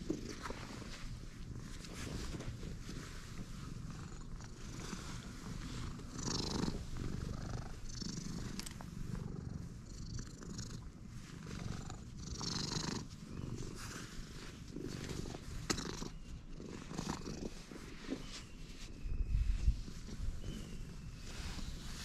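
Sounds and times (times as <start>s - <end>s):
cat purring: 0.0s - 22.0s.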